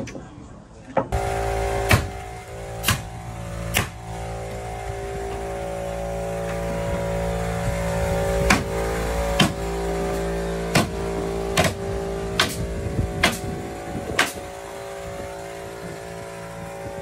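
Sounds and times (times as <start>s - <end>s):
motor drone: 1.1s - 17.0s
nail gun shots: 1.9s - 2.2s, 2.8s - 3.1s, 3.7s - 4.0s, 11.6s - 11.8s, 12.4s - 12.6s, 13.2s - 13.5s, 14.2s - 14.4s.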